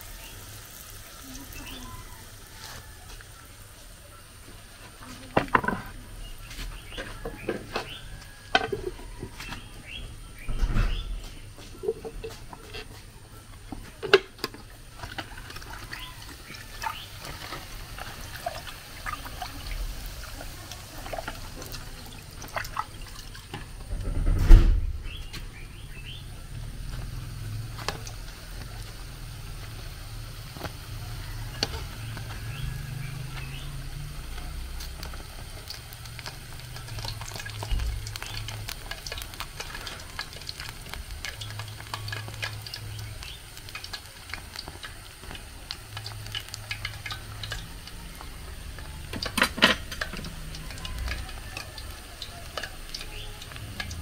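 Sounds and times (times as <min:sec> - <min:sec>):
oil sizzling: 0:00.0 - 0:54.0
loud low rumble: 0:23.9 - 0:27.6.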